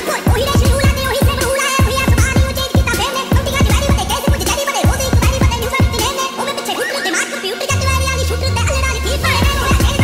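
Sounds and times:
music with swooping pitches: 0:00.0 - 0:10.0
deep bass: 0:07.7 - 0:10.0.

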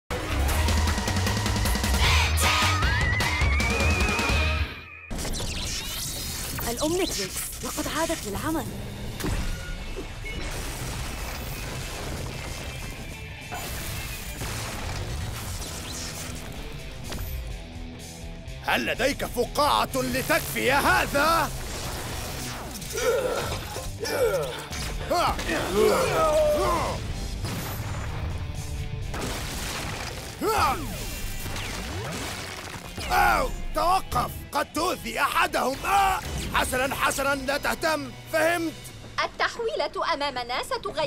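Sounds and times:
music: 0:00.0 - 0:41.0
crunching crashing rock effects: 0:09.2 - 0:17.3, 0:20.5 - 0:23.0, 0:26.9 - 0:33.7.

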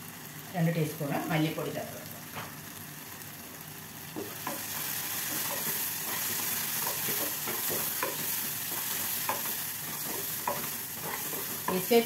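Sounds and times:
vegetables sizzling in a pan: 0:00.0 - 0:12.0
spatula scraping a pan: 0:04.2 - 0:12.0.

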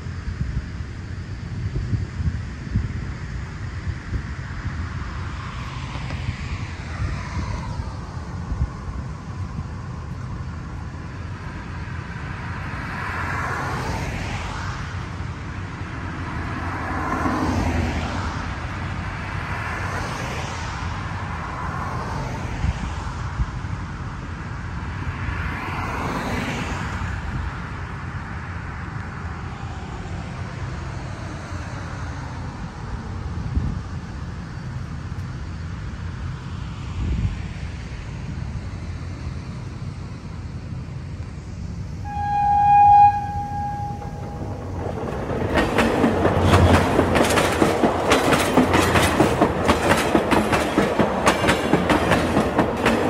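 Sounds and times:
low traffic rumble: 0:00.0 - 0:53.0
cars passing: 0:04.9 - 0:33.2, 0:42.0 - 0:53.0.

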